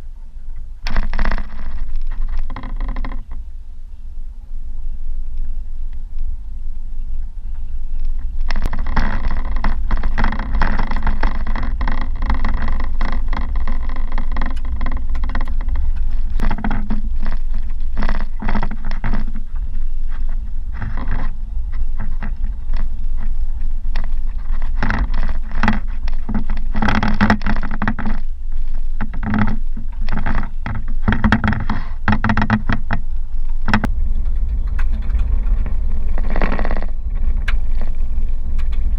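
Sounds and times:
tyres rumbling on gravel: 0.8s - 3.4s, 7.0s - 38.9s
vehicle rattling and knocking: 28.8s - 38.9s.

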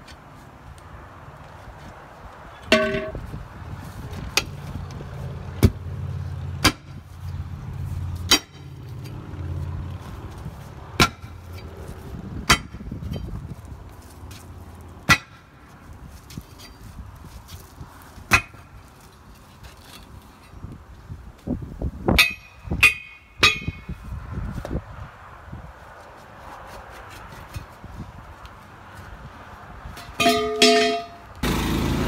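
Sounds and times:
vehicle engine droning: 2.6s - 12.5s, 30.2s - 32.0s
loud metallic clang with ringing: 2.7s - 3.2s, 30.1s - 31.2s.

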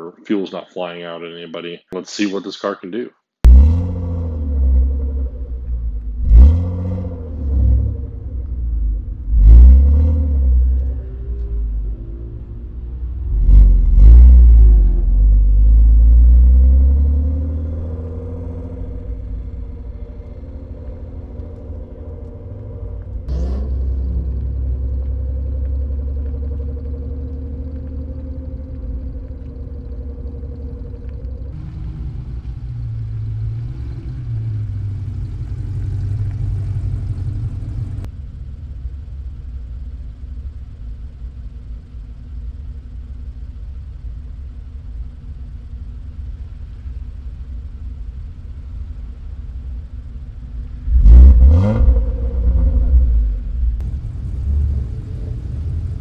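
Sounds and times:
car engine idling: 3.4s - 56.0s
car engine revving loudly: 3.5s - 5.4s, 6.2s - 8.4s, 9.2s - 11.8s, 13.2s - 38.1s, 50.9s - 56.0s.

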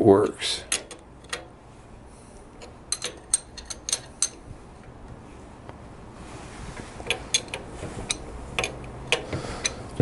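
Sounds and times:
kickstarter metallic clicks: 7.0s - 9.8s.

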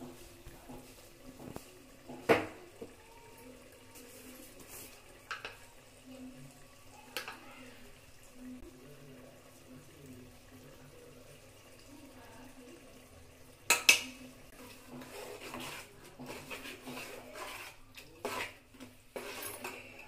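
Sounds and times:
spatula clanking on steel pot: 13.7s - 14.2s
spatula scraping pot: 14.5s - 20.0s.

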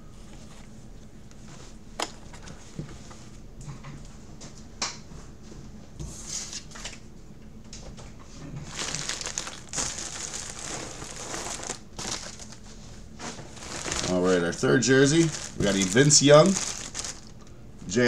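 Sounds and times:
plastic packaging crinkling: 8.6s - 18.0s.

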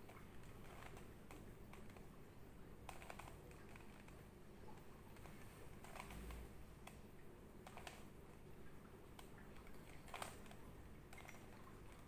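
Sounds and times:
plastic puzzle cube clicking: 2.9s - 4.2s, 5.2s - 7.0s.

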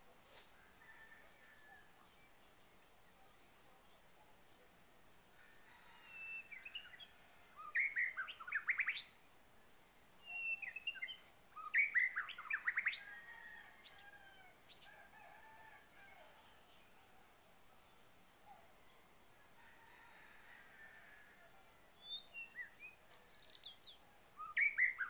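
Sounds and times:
songbird singing: 0.0s - 25.0s
bird chirps: 6.2s - 9.2s, 10.2s - 13.1s, 22.0s - 25.0s.

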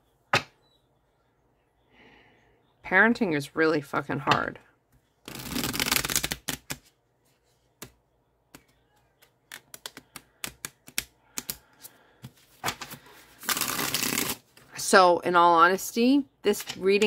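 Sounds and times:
cards shuffled by hand: 5.2s - 6.9s, 12.2s - 14.4s
cards riffling: 5.3s - 6.8s, 12.6s - 14.4s.

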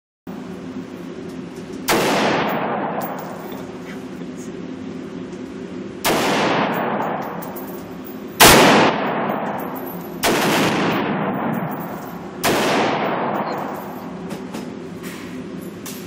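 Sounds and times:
rifle shots echoing indoors: 1.9s - 3.4s, 6.0s - 7.7s, 8.4s - 14.3s.

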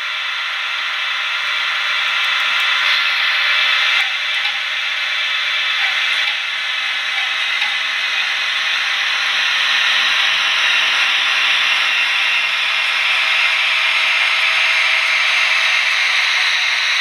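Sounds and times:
model train whirring on track: 0.0s - 17.0s.

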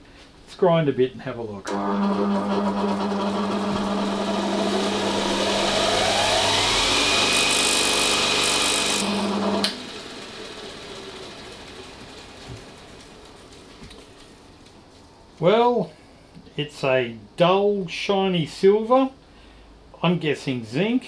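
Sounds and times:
power grinder grinding metal: 1.7s - 9.9s.

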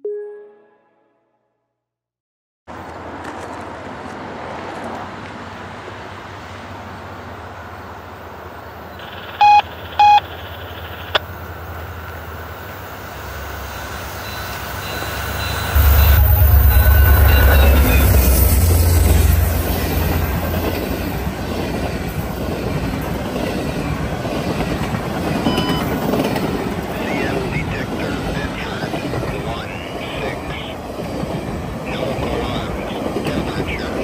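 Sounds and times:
diesel locomotive passing: 2.7s - 34.0s
short loud beeps: 9.0s - 10.4s, 14.2s - 19.3s, 25.4s - 26.0s.

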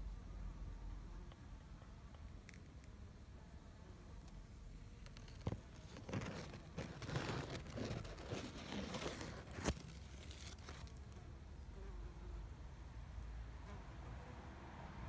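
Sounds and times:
leaves rustling against phone: 4.9s - 11.2s.

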